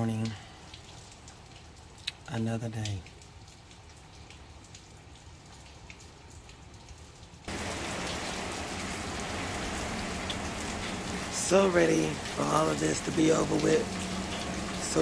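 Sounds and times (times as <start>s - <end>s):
steady rain falling: 0.0s - 15.0s
water drips: 0.0s - 15.0s.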